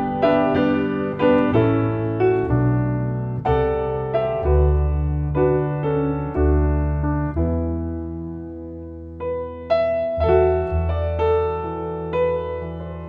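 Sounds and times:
plucked double bass: 0:00.0 - 0:08.0
grand piano: 0:00.0 - 0:13.0.

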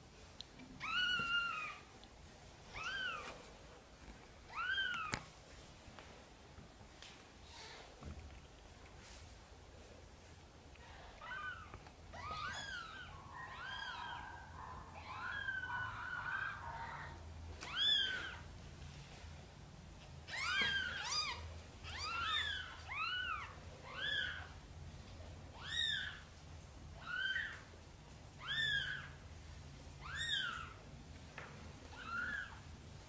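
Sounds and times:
kittens mewing: 0:11.1 - 0:18.5.

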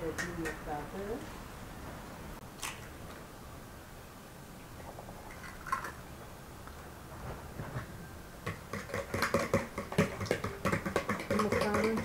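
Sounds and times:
utensil clicking on plastic bowl: 0:08.5 - 0:12.0.

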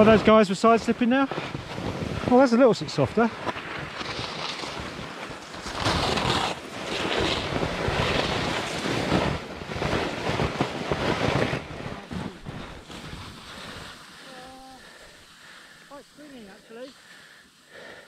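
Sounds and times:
skis scraping over snow: 0:00.0 - 0:18.0
wind on microphone: 0:05.8 - 0:14.0.

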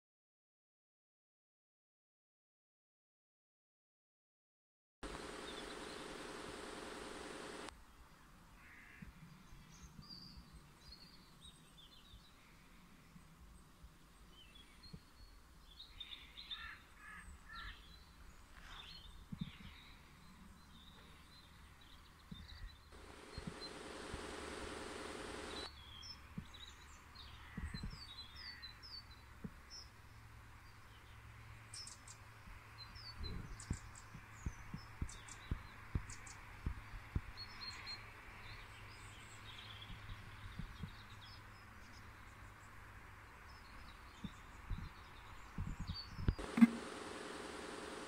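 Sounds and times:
steady noise with low drone: 0:05.0 - 0:08.6, 0:22.9 - 0:25.7, 0:46.3 - 0:48.0
faint low hum: 0:05.0 - 0:09.8, 0:19.1 - 0:25.7, 0:38.5 - 0:48.0
birds chirping: 0:05.0 - 0:12.4, 0:14.2 - 0:29.9, 0:32.8 - 0:48.0.

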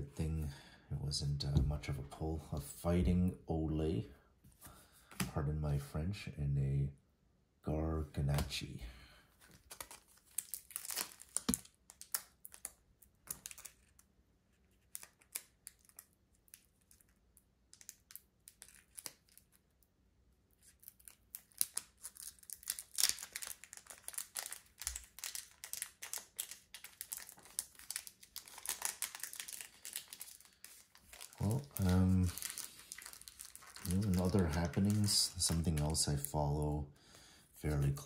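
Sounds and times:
foil wrappers crinkling and tearing: 0:09.5 - 0:14.0, 0:17.8 - 0:19.6, 0:20.7 - 0:36.4.

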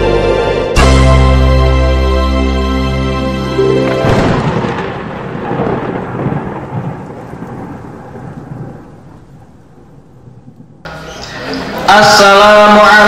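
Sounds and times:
thunder crack and rumble: 0:04.0 - 0:10.8.

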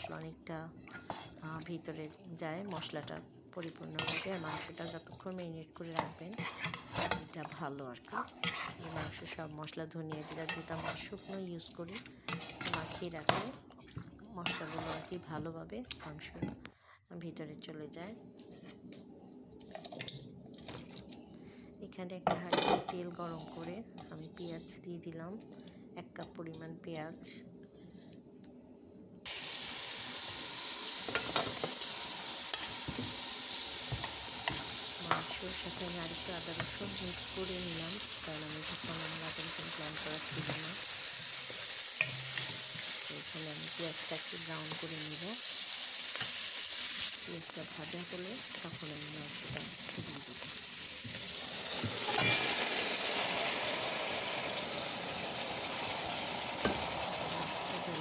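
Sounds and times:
onions sizzling in hot oil: 0:00.0 - 0:15.4, 0:29.3 - 0:58.0.

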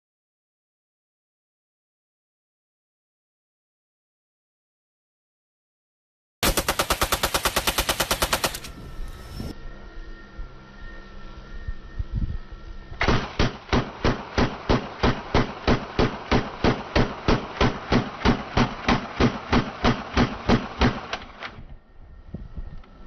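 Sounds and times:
submachine gun single shots: 0:06.4 - 0:08.8, 0:13.0 - 0:21.4.

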